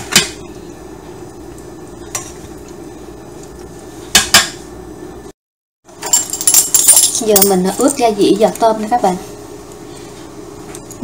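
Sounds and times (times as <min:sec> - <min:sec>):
tongs clinking on metal colander: 0:06.0 - 0:08.0
steady low hum: 0:06.1 - 0:11.0.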